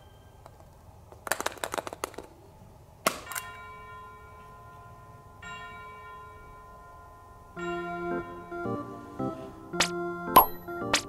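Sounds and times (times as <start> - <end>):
bell-like chimes ringing: 0.0 - 0.7, 3.2 - 10.9
plastic egg clicking: 0.4 - 2.3.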